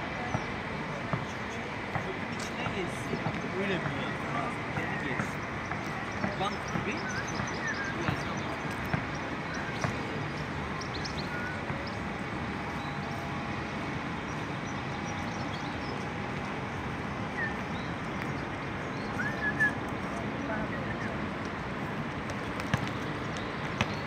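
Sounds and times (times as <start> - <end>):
distant traffic rumble: 0.0 - 24.0.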